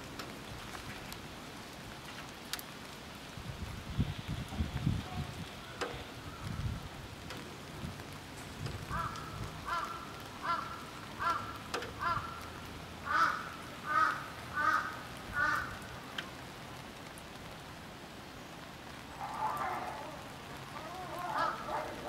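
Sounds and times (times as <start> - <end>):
rain pattering: 0.0 - 22.0
crow cawing: 8.9 - 15.9, 19.2 - 22.0.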